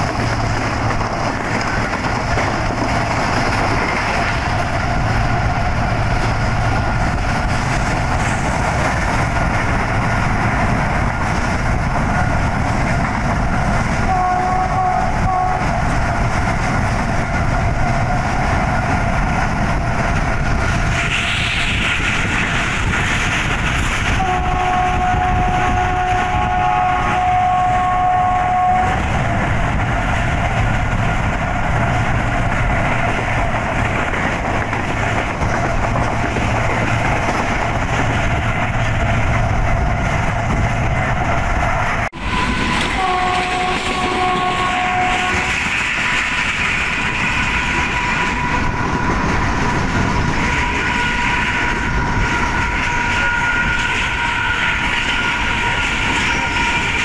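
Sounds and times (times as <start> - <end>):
train wheel and rail rumble: 0.0 - 57.0
locomotive horn: 14.0 - 15.8, 24.1 - 29.1, 42.2 - 45.8, 47.3 - 49.0, 50.4 - 57.0.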